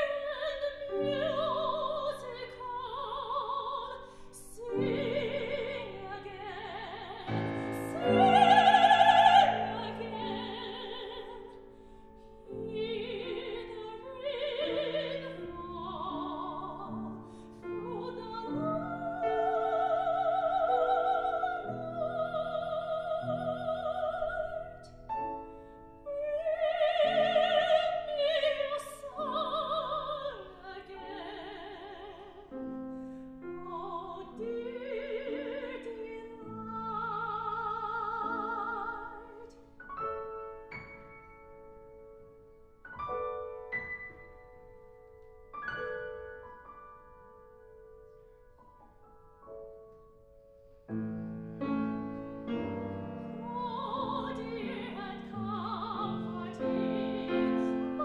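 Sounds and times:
soprano singing with vibrato: 0.0 - 24.9, 25.9 - 32.8, 33.4 - 39.8, 52.5 - 58.0
grand piano: 0.0 - 58.0.

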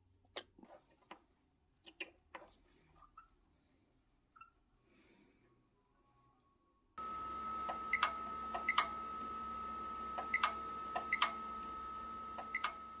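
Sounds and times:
sharp mechanical clicks: 7.7 - 9.0, 10.2 - 11.4, 12.4 - 13.0.

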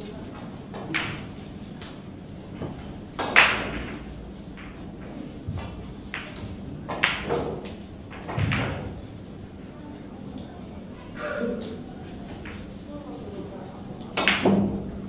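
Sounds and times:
sharp knocks and clicks: 5.5 - 9.0.

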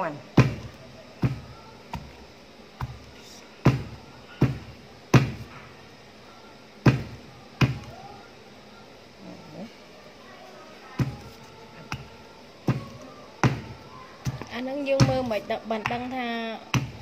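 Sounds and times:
pestle pounding in mortar: 0.3 - 2.2, 2.8 - 5.5, 6.8 - 7.9, 11.9 - 17.0.

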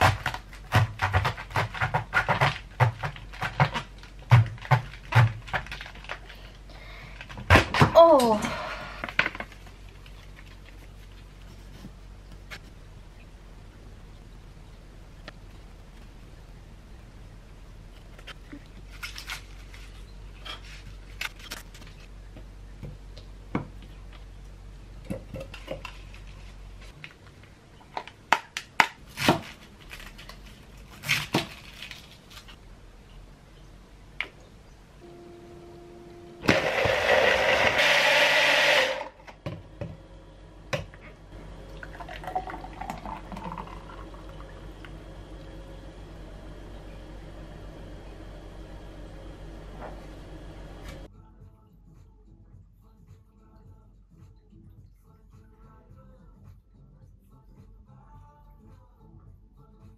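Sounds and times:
faint low hum: 0.0 - 37.7, 39.0 - 59.9
bottle blender running: 36.4 - 39.2
smoothie pouring into a glass: 41.7 - 44.6.

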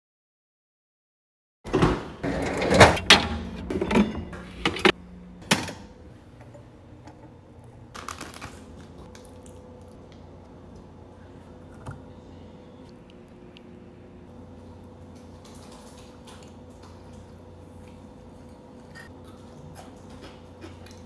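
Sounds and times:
kitchen knocks and clatters: 1.7 - 7.4
faint steady hum: 2.7 - 21.0.

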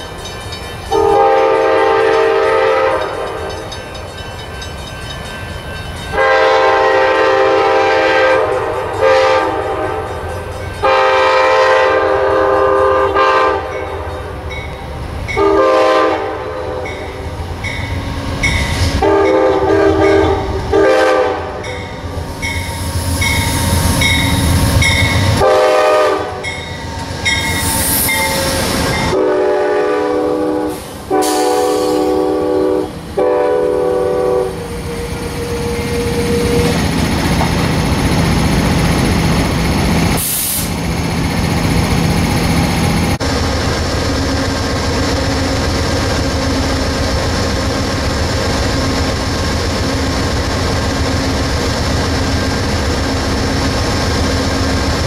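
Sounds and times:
engine and wheels rumbling on rails: 0.0 - 55.0
locomotive air horn blasts: 0.9 - 3.5, 6.2 - 10.1, 10.8 - 13.9, 15.4 - 17.0, 19.0 - 21.8, 25.4 - 26.5, 28.1 - 36.8.

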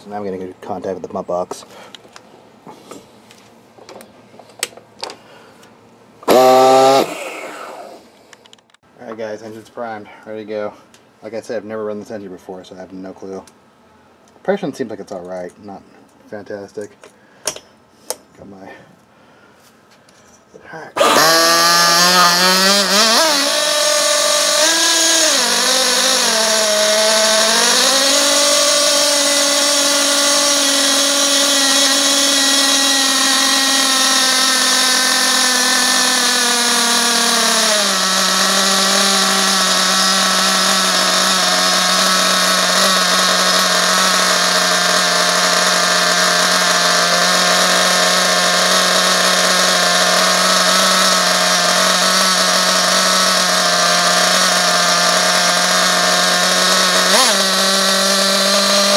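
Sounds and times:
model engine idling: 21.0 - 58.9.

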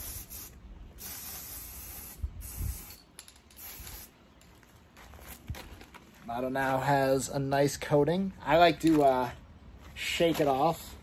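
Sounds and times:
spray paint can hissing: 0.0 - 4.2.

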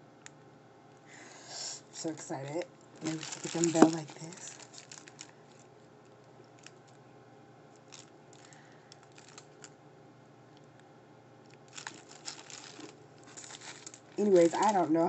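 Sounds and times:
paper wrapper rustling: 3.0 - 5.7, 7.8 - 9.7, 11.6 - 15.0.

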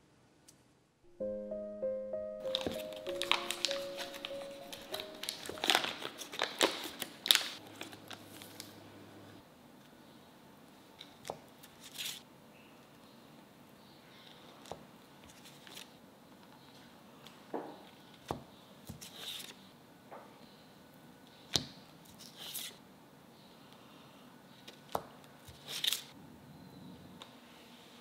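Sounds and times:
foil wrapper crinkling: 2.5 - 8.7.

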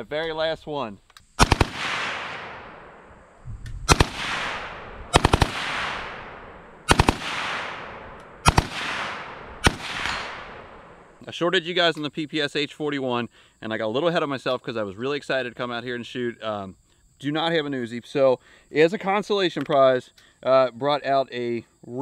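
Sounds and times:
automatic rifle bursts: 1.4 - 2.6, 3.9 - 10.6
gunshot echo: 1.4 - 11.2.

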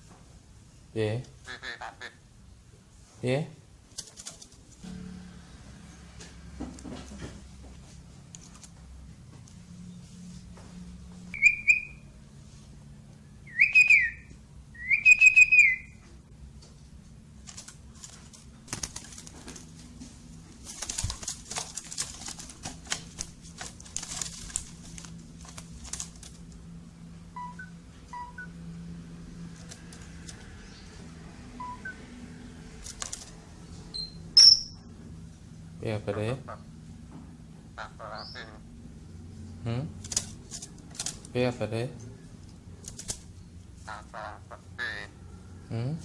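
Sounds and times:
wing fluttering in cage: 3.9 - 5.1, 17.4 - 26.7, 29.2 - 30.7, 32.7 - 33.5, 40.0 - 41.4, 42.8 - 43.4
sharp high bird call: 11.4 - 12.0
starling whistled calls: 11.4 - 12.1, 13.4 - 16.0.

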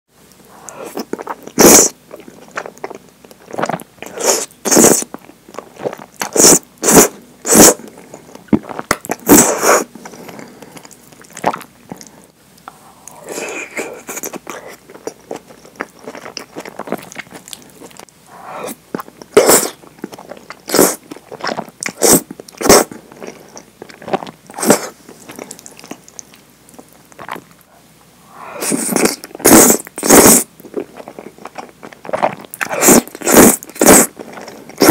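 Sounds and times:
slurping noodles: 0.6 - 2.7, 3.5 - 5.1, 5.7 - 12.1, 16.0 - 19.8, 20.6 - 25.6, 28.4 - 34.9
wet chewing: 0.6 - 27.7, 28.6 - 34.9.

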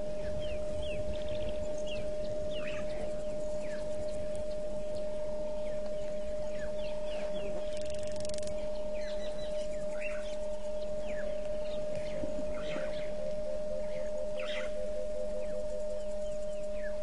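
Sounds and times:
birds chirping and whistling: 0.0 - 17.0
steady humming tone: 0.0 - 17.0.

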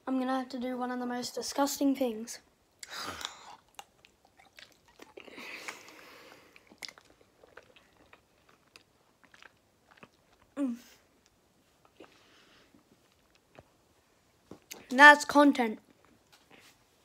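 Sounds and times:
wet chewing and mouth noises: 2.8 - 13.8.

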